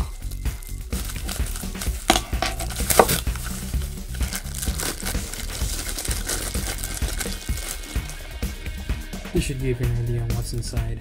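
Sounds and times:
plastic packaging crinkling: 0:00.0 - 0:08.4
background music: 0:00.0 - 0:11.0.

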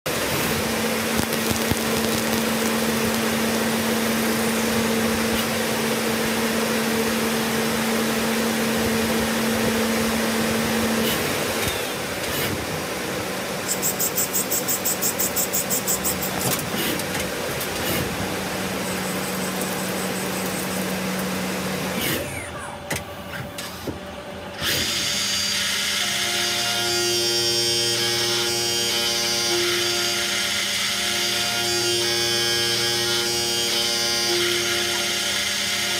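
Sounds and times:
metal cutting noise: 0:00.1 - 0:12.8, 0:13.6 - 0:22.8
fast pulsing: 0:01.1 - 0:05.2
lathe spindle steady tone: 0:17.6 - 0:22.5
milling machine tones: 0:18.5 - 0:21.6.

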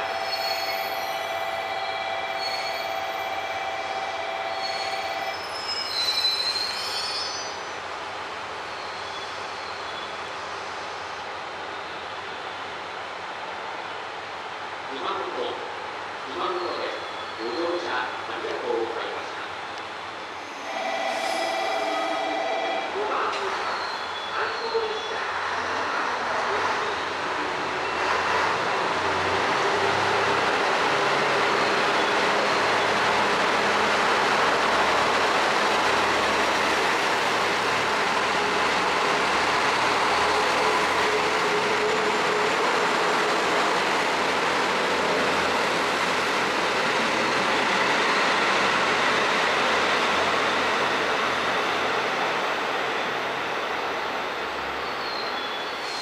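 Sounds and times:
train wheels on rails: 0:19.7 - 0:56.0.

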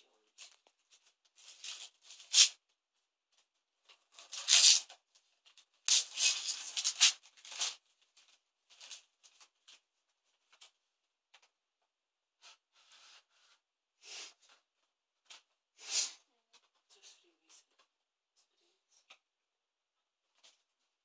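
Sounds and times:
wrapping paper tearing and rustling: 0:00.4 - 0:02.6, 0:04.1 - 0:04.9, 0:05.8 - 0:09.8.

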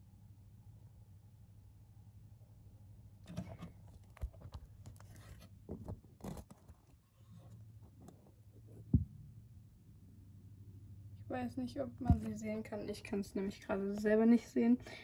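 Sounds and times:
scratching and rustling handling noise: 0:03.3 - 0:08.9.

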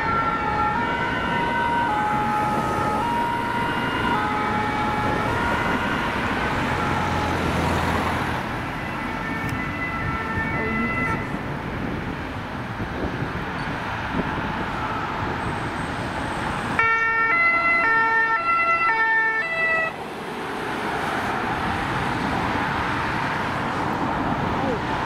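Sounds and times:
two-tone ambulance siren: 0:00.0 - 0:12.0, 0:14.6 - 0:20.0
road traffic noise: 0:00.0 - 0:25.0.

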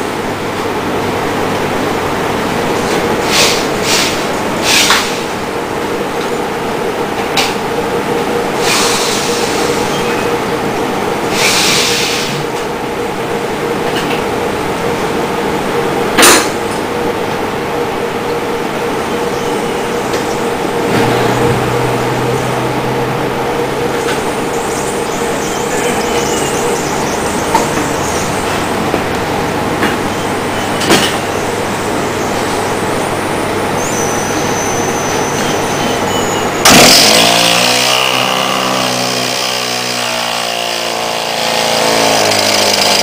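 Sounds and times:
small engine rattling: 0:36.6 - 0:43.0.

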